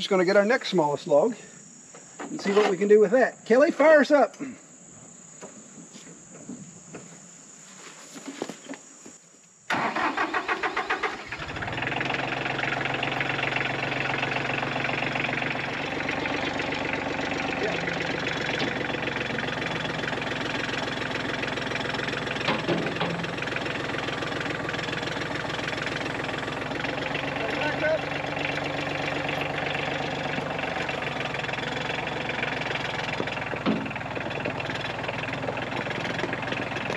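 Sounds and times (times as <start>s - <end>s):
crickets buzzing: 0.0s - 36.9s
diesel engine running: 9.7s - 36.9s
diesel engine starter cranking: 9.7s - 36.9s.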